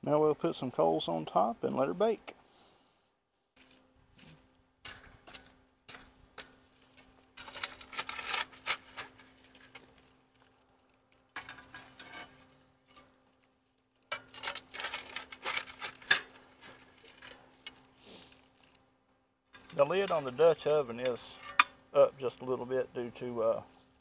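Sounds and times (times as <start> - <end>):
shovel scraping coals: 3.6 - 24.0
coals rattling on metal lid: 4.8 - 24.0.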